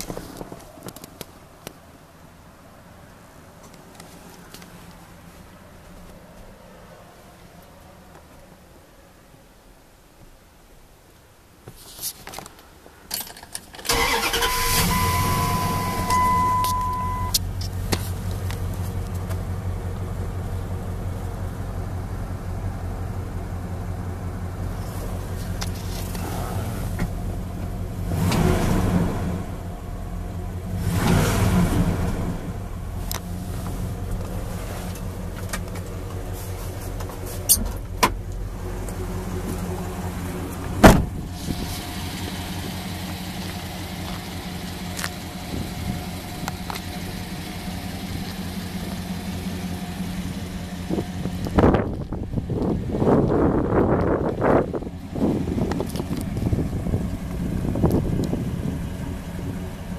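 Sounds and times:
truck engine idling: 0:13.9 - 0:59.9.

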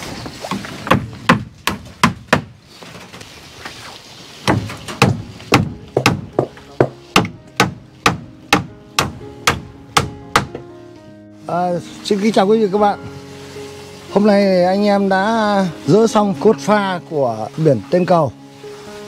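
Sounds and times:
hammer striking wooden planks: 0:00.5 - 0:02.6, 0:04.4 - 0:10.6.

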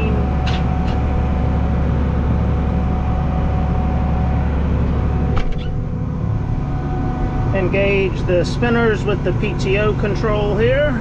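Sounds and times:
tractor engine humming: 0:00.0 - 0:11.0.

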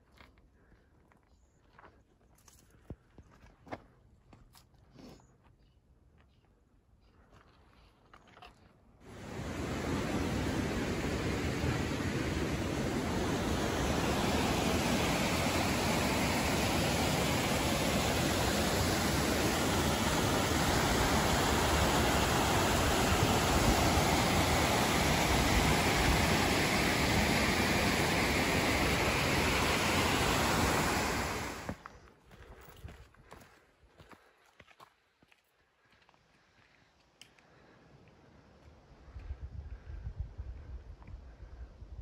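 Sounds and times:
creek pouring over rocks: 0:09.1 - 0:31.8.

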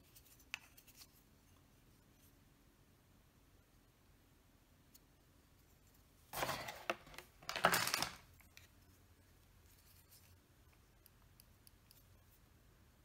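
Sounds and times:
packaging rustling and scraping: 0:06.3 - 0:08.3.

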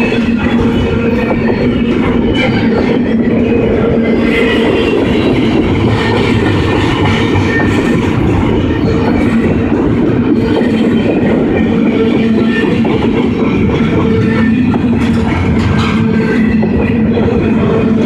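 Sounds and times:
clickety-clack of wheels: 0:00.0 - 0:18.0
train wheels rumbling on rails: 0:00.0 - 0:18.0.

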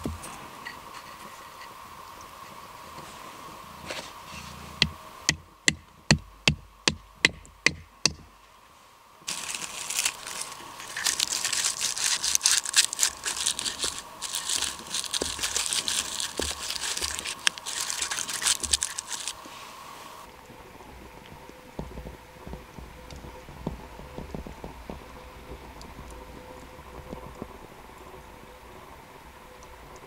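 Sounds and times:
knife scraping wood: 0:10.1 - 0:19.5.

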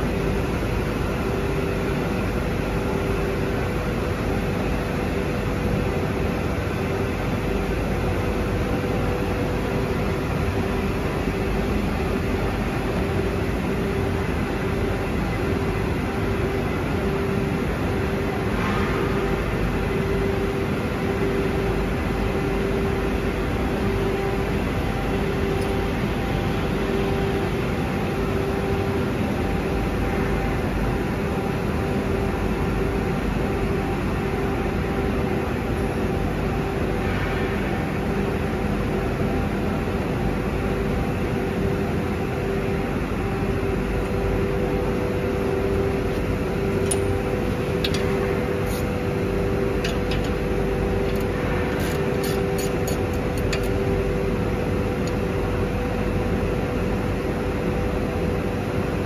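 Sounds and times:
factory machinery hum: 0:00.0 - 0:59.0.

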